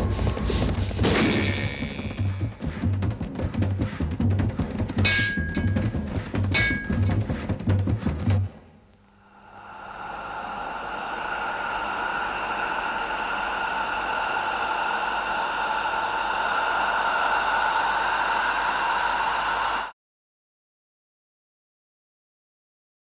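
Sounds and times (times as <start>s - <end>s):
steady ringing tones: 5.0s - 7.2s
hissing noise: 9.2s - 20.0s.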